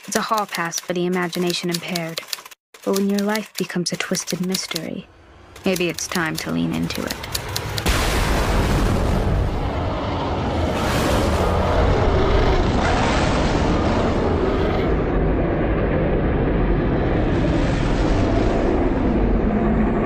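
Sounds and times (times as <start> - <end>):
loud steady rumbling: 5.0 - 20.0.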